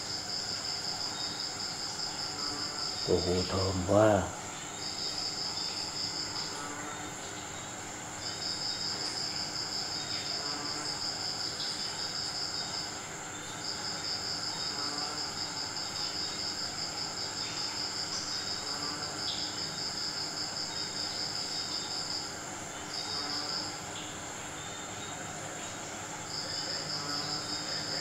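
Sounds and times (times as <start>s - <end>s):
insect trilling: 0.3s - 28.0s.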